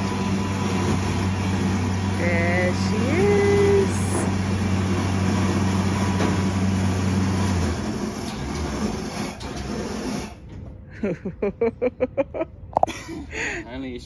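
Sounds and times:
low motor hum: 0.0 - 10.8.

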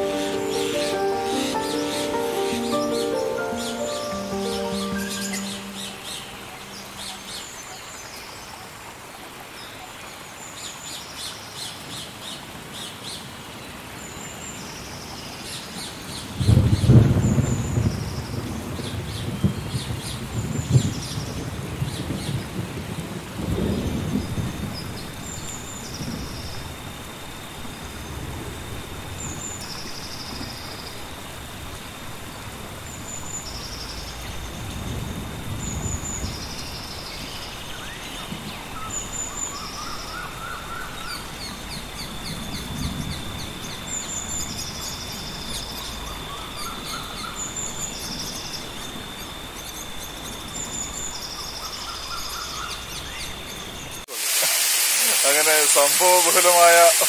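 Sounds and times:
bird calling with trill: 0.0 - 7.8
lower bird trill: 0.0 - 7.9.

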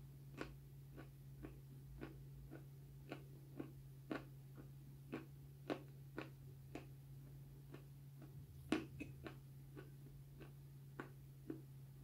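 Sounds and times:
steady low hum: 0.0 - 12.0
crunchy food being chewed: 0.3 - 11.9.

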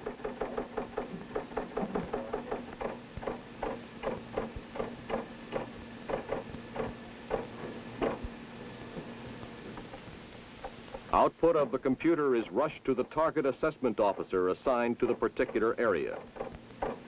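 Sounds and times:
keyboard typing clacks: 0.0 - 8.2
faint electrical hum: 0.0 - 17.0.

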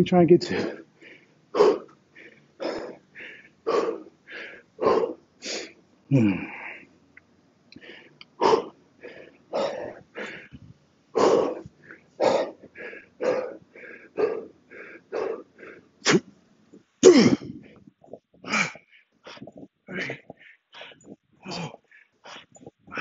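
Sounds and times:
man grunting exhale: 6.1 - 6.8.

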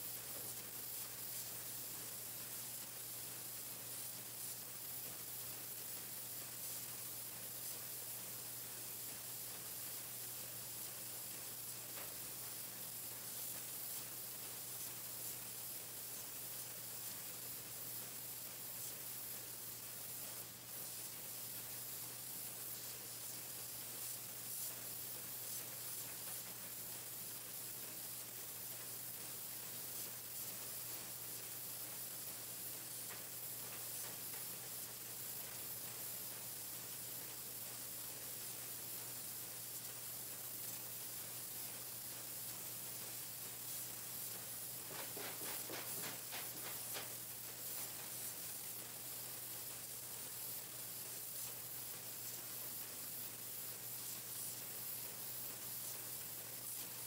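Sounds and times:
machine hiss: 0.0 - 57.0.

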